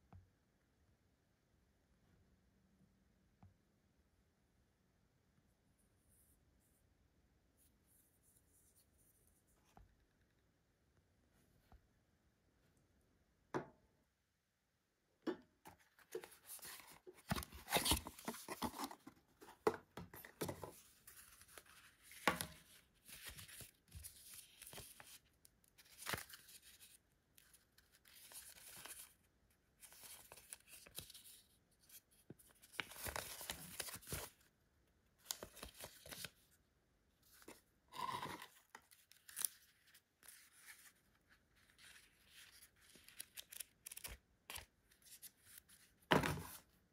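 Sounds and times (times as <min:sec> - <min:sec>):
paper rustling and crinkling: 0:15.7 - 0:29.2, 0:29.8 - 0:34.5, 0:35.2 - 0:36.5, 0:38.5 - 0:46.7.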